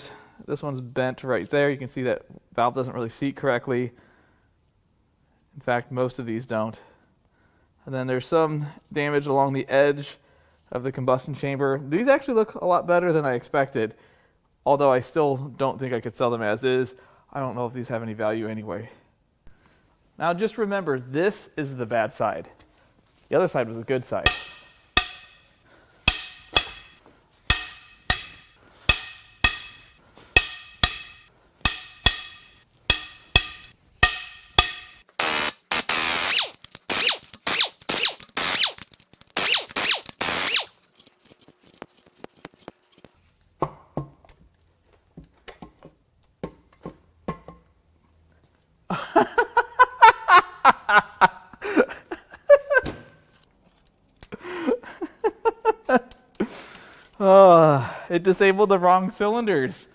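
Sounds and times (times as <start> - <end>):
pneumatic impact wrench: 35.2 - 40.8
metal parts clattering: 40.0 - 43.1.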